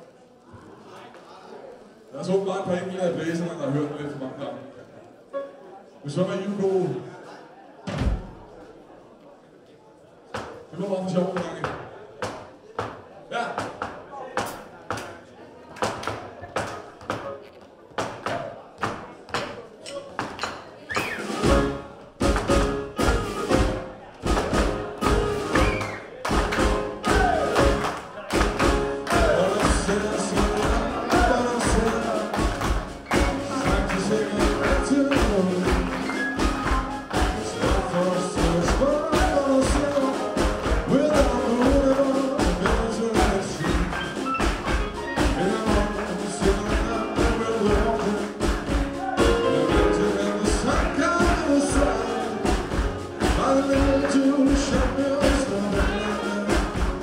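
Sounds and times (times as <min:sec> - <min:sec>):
jazz blues band playing: 0:21.0 - 0:57.0.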